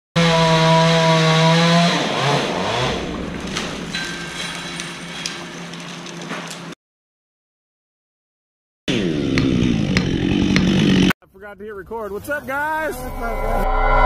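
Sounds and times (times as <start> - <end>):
chainsaw running: 0.2 - 6.7, 8.9 - 11.2.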